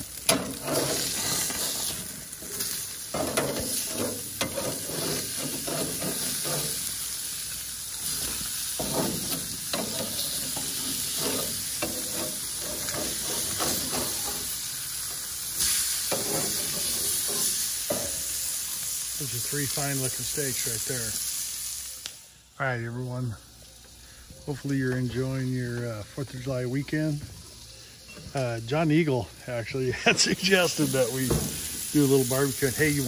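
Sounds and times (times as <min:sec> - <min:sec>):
steaks sizzling on grill: 0:00.0 - 0:33.0
metal spatula scraping grates: 0:00.3 - 0:07.0, 0:08.0 - 0:14.6, 0:15.6 - 0:18.2.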